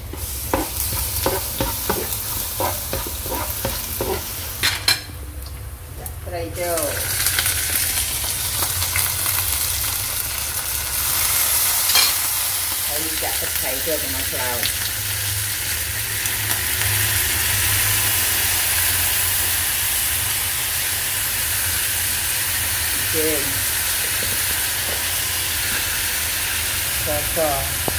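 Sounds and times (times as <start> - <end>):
fish sizzling in hot oil: 0.0 - 4.8, 6.6 - 27.9.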